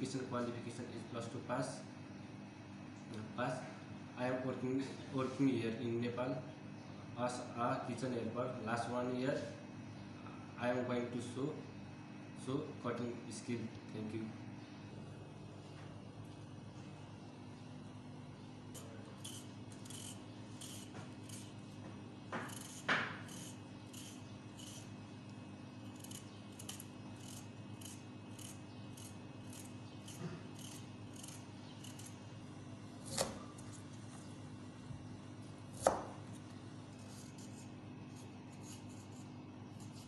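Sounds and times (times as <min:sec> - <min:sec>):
low steady hum: 0:00.0 - 0:40.0
peeler scraping carrot: 0:18.7 - 0:21.8, 0:22.4 - 0:25.0, 0:25.8 - 0:32.3, 0:35.7 - 0:40.0.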